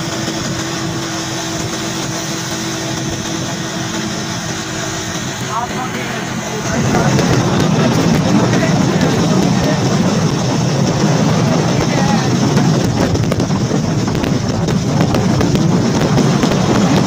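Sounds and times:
motorcycle engine running: 0:00.0 - 0:17.0
wind rushing over microphone: 0:00.0 - 0:17.0.

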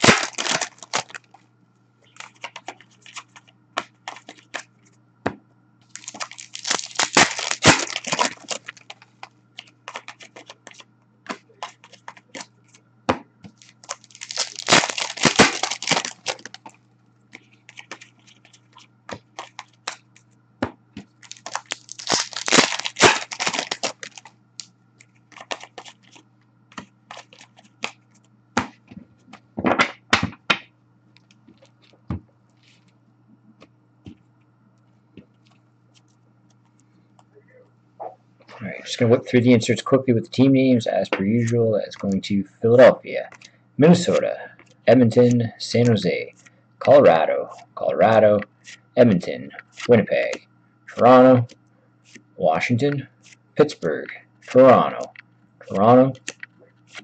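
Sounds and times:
card packs ripping open: 0:00.0 - 0:01.3, 0:05.9 - 0:09.0, 0:09.6 - 0:10.8, 0:13.6 - 0:16.7, 0:19.4 - 0:20.0, 0:21.2 - 0:24.3, 0:25.3 - 0:26.2, 0:27.1 - 0:27.7
cards clicking and snapping: 0:06.0 - 0:12.5, 0:13.4 - 0:16.7, 0:21.2 - 0:24.3, 0:25.0 - 0:28.0, 0:54.4 - 0:57.0.

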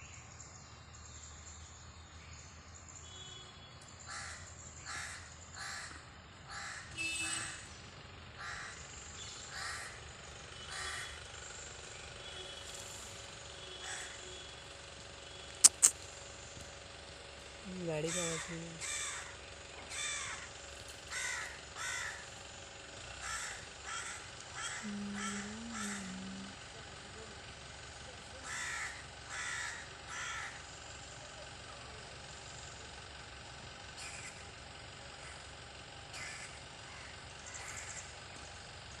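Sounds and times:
bird cawing: 0:03.0 - 0:12.8, 0:13.4 - 0:16.2, 0:18.0 - 0:26.8, 0:28.3 - 0:30.9, 0:33.4 - 0:38.9.

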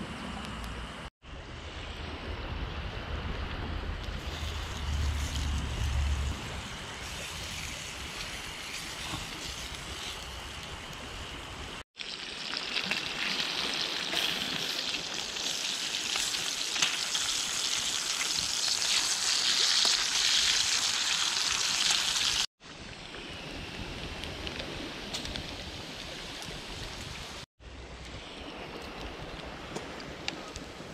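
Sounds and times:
bacon sizzling in a frying pan: 0:12.0 - 0:22.5.

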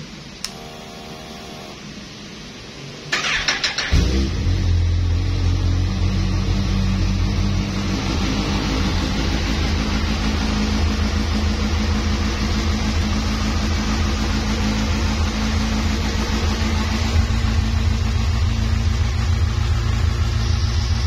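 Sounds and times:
motorcycle engine idling: 0:09.5 - 0:21.0.

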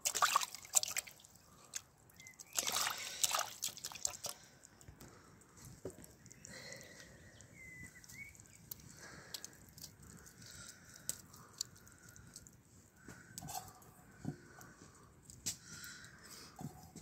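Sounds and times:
meat being pulled apart: 0:00.7 - 0:13.8.

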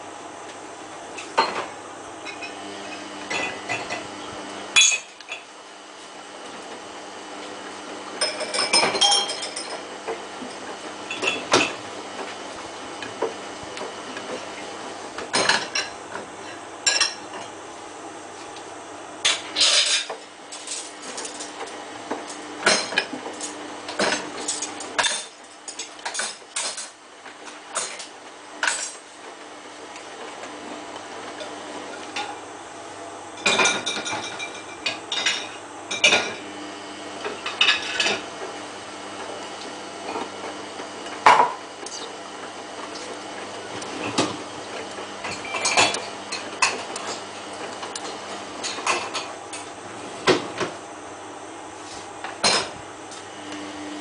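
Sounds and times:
washing machine hum: 0:00.0 - 0:54.0.

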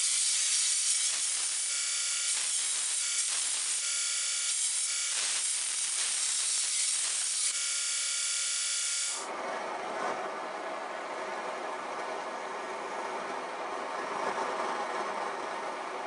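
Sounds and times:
belt grinder grinding steel blade: 0:00.0 - 0:09.3.

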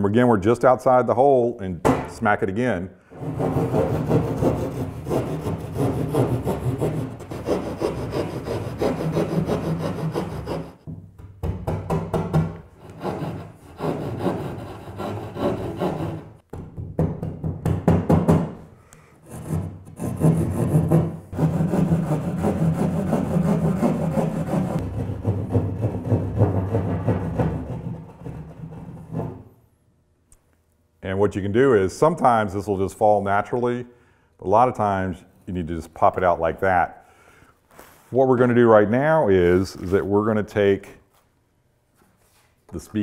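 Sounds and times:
hand saw rasping through drywall: 0:03.1 - 0:10.8, 0:12.8 - 0:16.4, 0:19.2 - 0:29.5.

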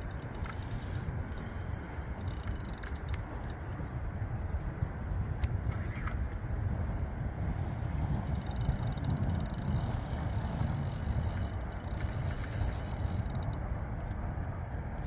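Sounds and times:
fishing reel clicking rapidly: 0:00.0 - 0:01.5, 0:02.1 - 0:03.6, 0:08.2 - 0:13.6.

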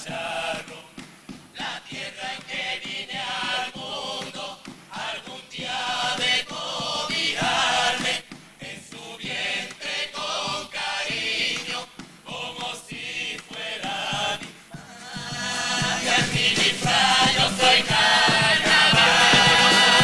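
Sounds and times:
choir singing in harmony: 0:00.0 - 0:20.0.

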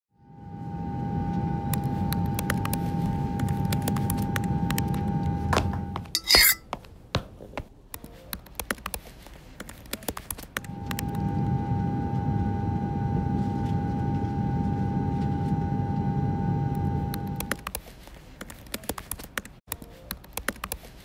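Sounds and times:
steady low hum: 0:00.2 - 0:06.6, 0:10.6 - 0:17.6.

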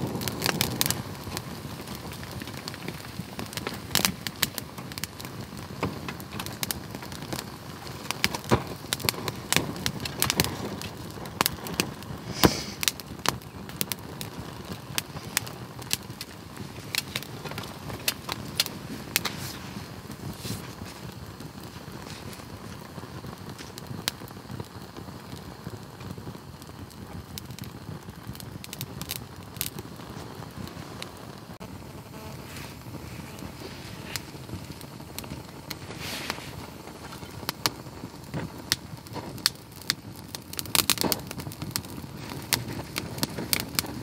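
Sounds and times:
steady low hiss: 0:00.0 - 0:44.0
wood fire crackling and popping: 0:00.0 - 0:44.0.

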